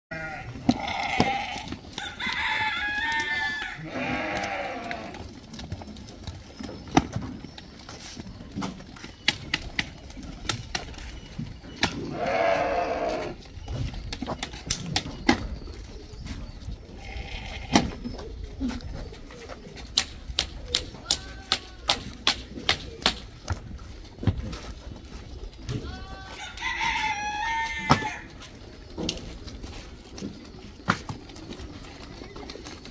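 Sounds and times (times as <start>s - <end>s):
sheep bleating: 0.1s - 1.7s, 3.1s - 5.2s, 12.1s - 13.4s.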